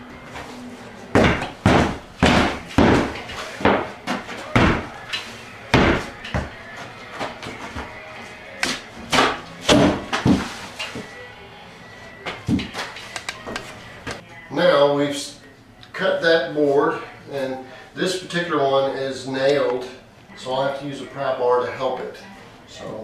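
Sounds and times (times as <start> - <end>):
boots stomping on board: 1.2 - 4.9, 5.7 - 6.6.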